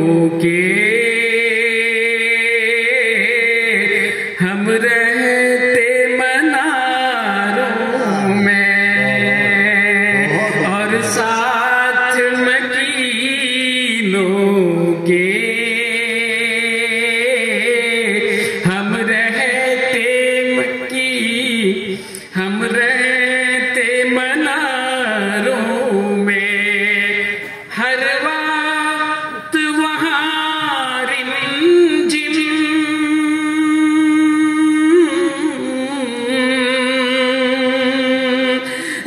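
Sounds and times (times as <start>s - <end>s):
man singing: 0.0s - 38.6s.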